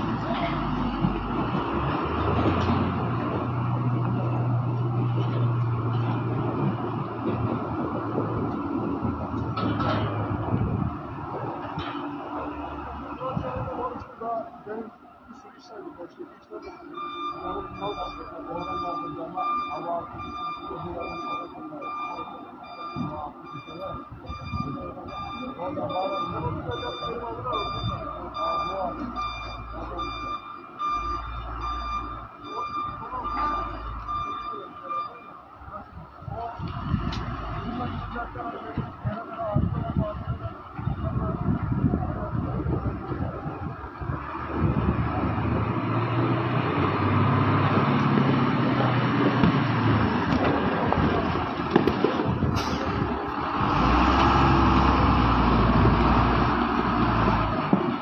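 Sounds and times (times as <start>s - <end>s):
heavy diesel engine running: 0.0s - 58.0s
electronic warning beeps: 16.6s - 35.4s.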